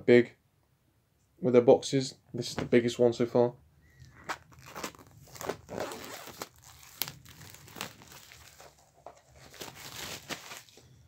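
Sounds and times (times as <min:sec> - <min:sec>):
packaging crinkling and rustling: 0:04.0 - 0:10.8.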